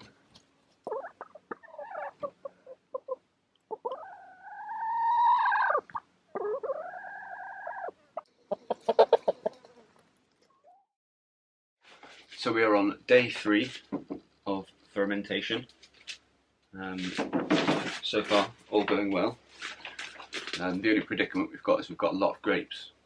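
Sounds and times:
chickens clucking: 0.0 - 10.9
chicken long drawn-out calls: 0.8 - 10.8.

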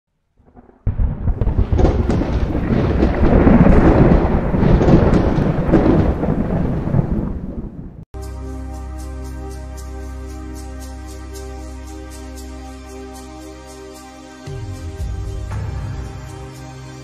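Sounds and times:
deep thunder-like rumble: 0.4 - 8.0.

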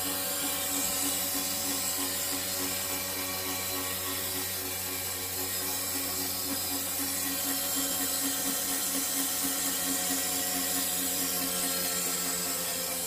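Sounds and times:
electric fuel pump humming: 0.0 - 13.0.

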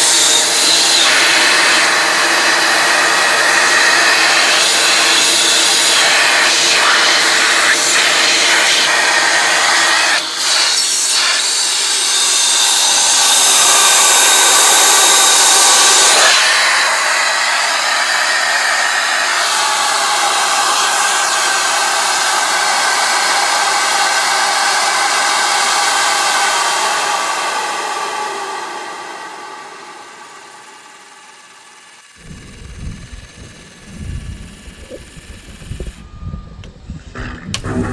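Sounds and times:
electric motor humming with whine: 0.0 - 37.9.

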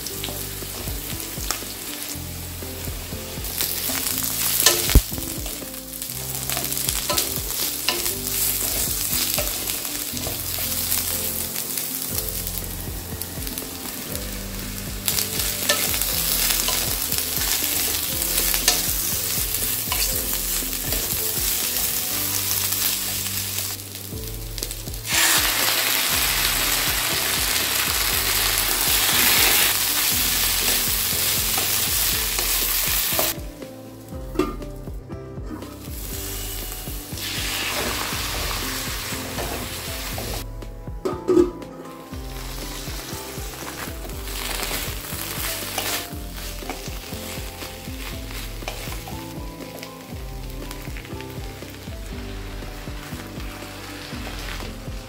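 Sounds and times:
vegetables sizzling in oil: 0.0 - 34.6, 35.7 - 40.4, 42.0 - 55.0
spatula scraping and knocking pan: 3.2 - 5.6, 6.5 - 11.5, 15.0 - 23.2.

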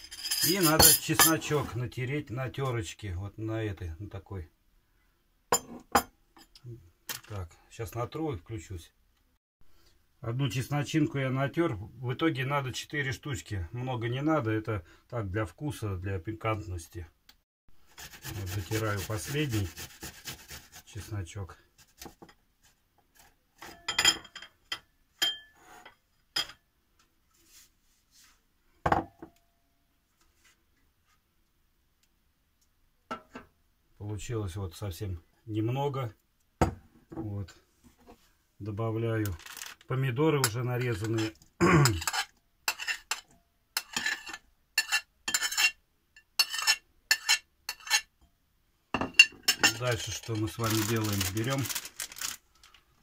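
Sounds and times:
clinks on glass bowl: 0.0 - 1.4, 5.5 - 6.5, 23.7 - 25.6
metal utensil scraping plate: 40.8 - 45.8, 46.4 - 48.1.

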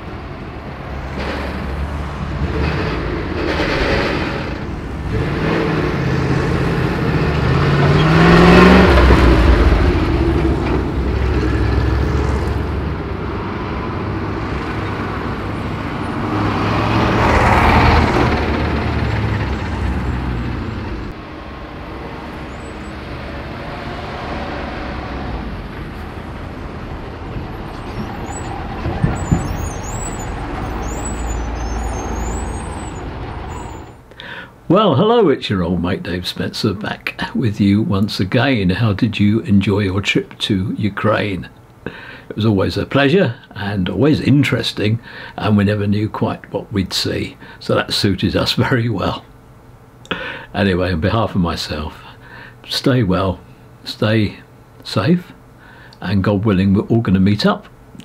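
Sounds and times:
lorry engine passing: 0.0 - 34.0
road traffic: 0.0 - 34.8, 35.5 - 58.0.

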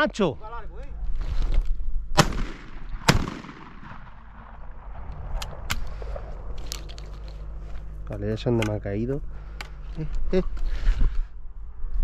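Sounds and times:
shotgun shots with echo: 2.2 - 4.8.

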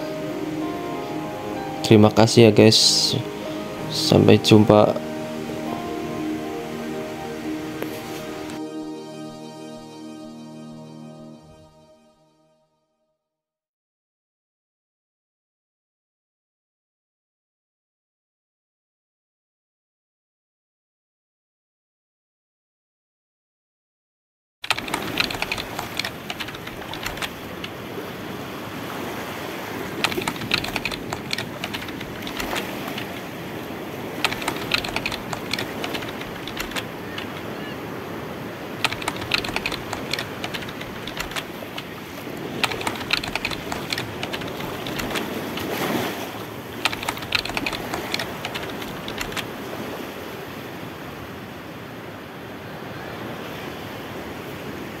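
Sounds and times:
waves washing: 0.0 - 9.6, 24.6 - 55.0
keyboard typing clicks: 24.6 - 27.8, 30.0 - 33.3, 34.2 - 37.4, 38.8 - 42.0, 42.6 - 45.7, 46.8 - 49.5.

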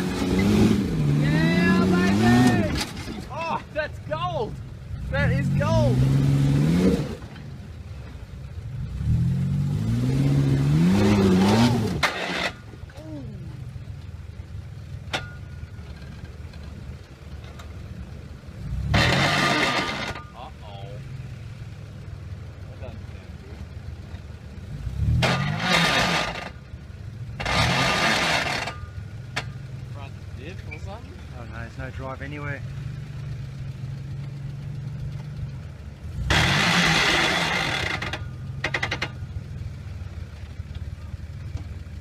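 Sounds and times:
engine revving hard: 0.0 - 2.8, 5.0 - 7.2, 8.8 - 12.6, 18.6 - 20.2, 24.7 - 26.5, 27.4 - 28.8, 36.2 - 38.2.

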